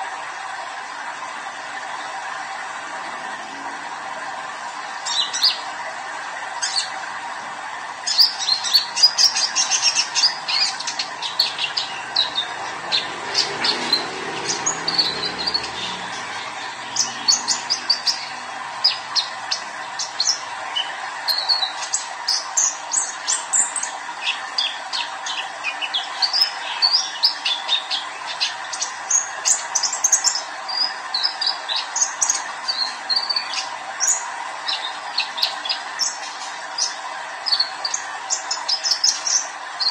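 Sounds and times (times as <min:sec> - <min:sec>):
bird twittering: 0:08.1 - 0:22.8.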